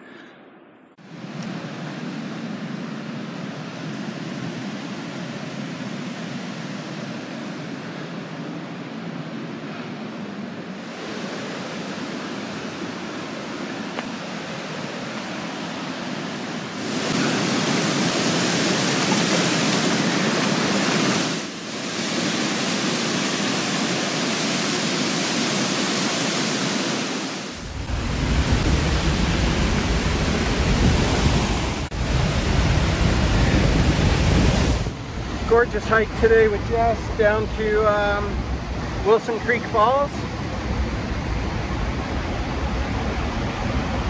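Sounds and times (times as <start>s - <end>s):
waterfall roaring: 1.0s - 44.0s
wind buffeting microphone: 27.5s - 39.6s.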